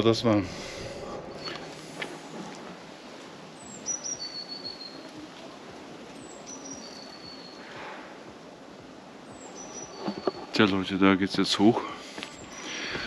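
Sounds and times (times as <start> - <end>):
outdoor background noise: 0.0 - 13.0
songbird singing: 0.0 - 13.0.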